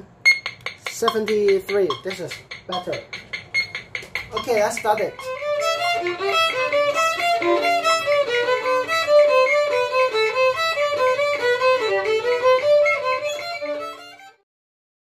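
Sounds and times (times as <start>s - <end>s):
solo violin bowing short notes: 5.2s - 14.2s.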